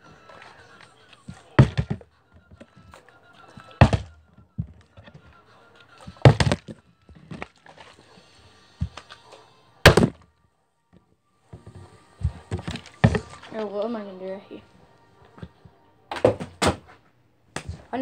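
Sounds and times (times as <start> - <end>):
plastic bottle thudding on carpet: 1.3 - 2.7, 3.6 - 5.1, 6.1 - 7.6, 9.9 - 10.2, 11.6 - 13.6, 16.1 - 17.0.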